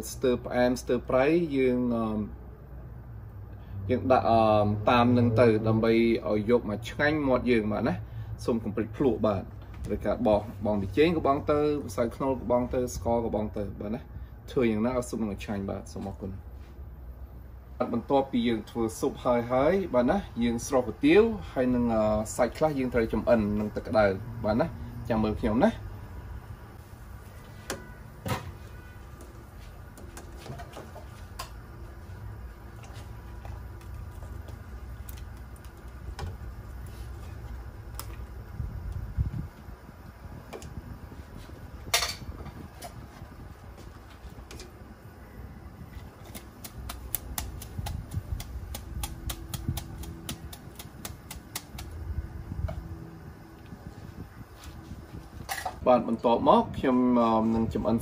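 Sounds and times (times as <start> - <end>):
gas burner rumble: 3.0 - 58.0
water boiling in pot: 28.7 - 55.7.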